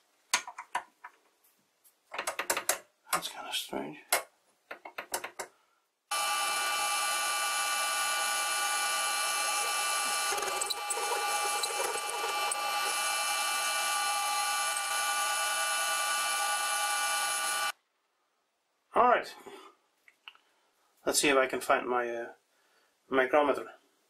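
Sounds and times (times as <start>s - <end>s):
lathe whining: 6.1s - 17.7s
rough scratchy cutting: 9.3s - 15.2s.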